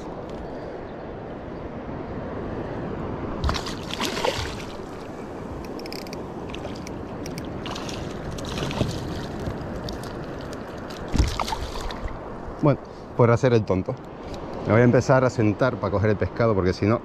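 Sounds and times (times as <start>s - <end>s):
wind: 0.0s - 17.0s
fish splashing at water surface: 3.4s - 5.0s
water washing: 3.4s - 5.2s.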